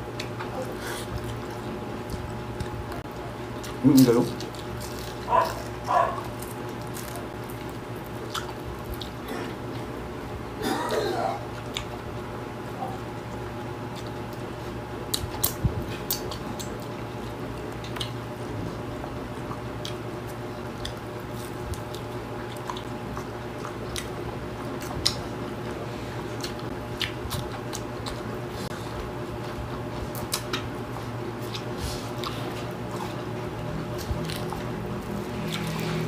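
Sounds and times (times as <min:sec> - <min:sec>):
steady low hum: 0:00.0 - 0:36.0
chewing mouth sounds: 0:03.5 - 0:09.9, 0:15.1 - 0:18.2, 0:19.4 - 0:28.4, 0:29.6 - 0:36.0.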